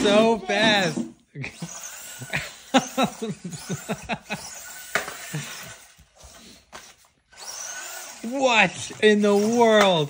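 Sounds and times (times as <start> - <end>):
bursts of laughter: 1.3 - 5.8.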